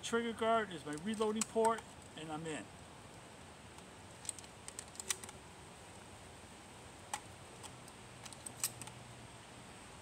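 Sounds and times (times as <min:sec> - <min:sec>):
shotgun shells loading clicks: 0:04.1 - 0:05.4, 0:07.2 - 0:09.0.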